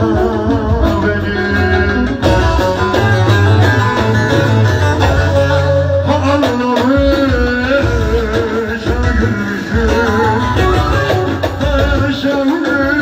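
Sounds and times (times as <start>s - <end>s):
man singing ornamented melody: 0.0s - 3.5s, 5.2s - 13.0s
band with plucked lute and bass: 0.0s - 13.0s.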